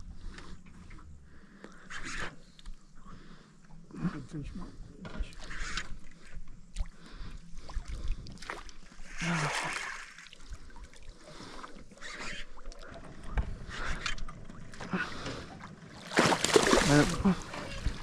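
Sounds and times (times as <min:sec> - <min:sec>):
water splashing around a boat: 0:05.4 - 0:18.0.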